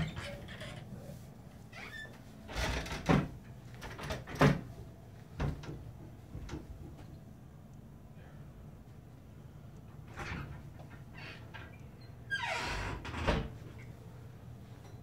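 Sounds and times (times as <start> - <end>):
steady low hum: 0.0 - 12.3
short knocks and bumps: 5.3 - 7.1.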